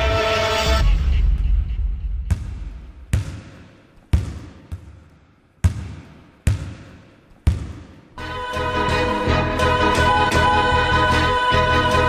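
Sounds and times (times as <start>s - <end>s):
basketball bouncing on hard floor: 2.3s - 8.0s.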